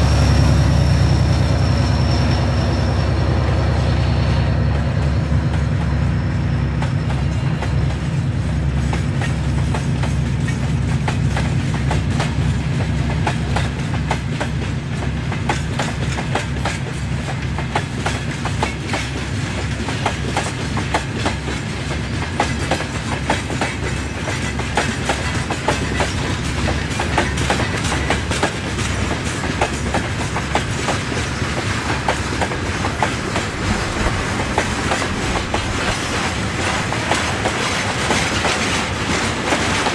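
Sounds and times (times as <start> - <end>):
train wheels clickety-clack: 0.0 - 39.9
low rumble of wagons: 24.0 - 39.9.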